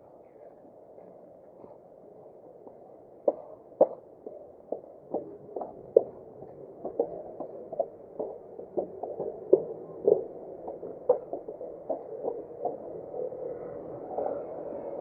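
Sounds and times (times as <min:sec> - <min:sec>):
background hum: 0:00.0 - 0:15.0
footsteps on concrete stairs: 0:02.7 - 0:13.5.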